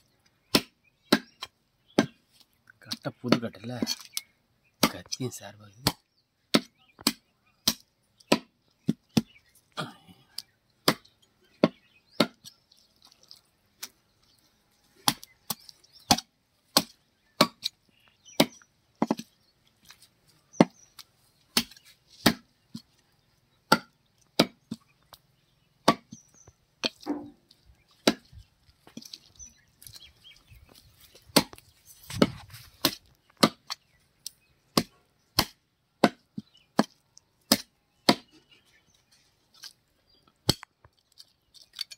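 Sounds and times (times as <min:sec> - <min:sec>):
knife chopping on wooden block: 0:18.4 - 0:19.2, 0:23.7 - 0:24.8, 0:26.8 - 0:27.4.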